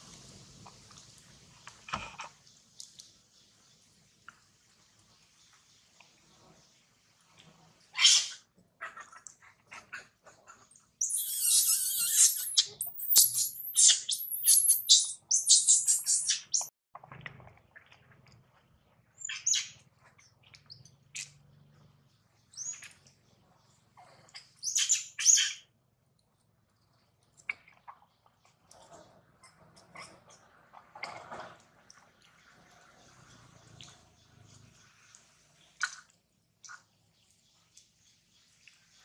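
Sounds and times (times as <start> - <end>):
baby monkey screaming: 7.9 - 16.6, 24.6 - 25.6.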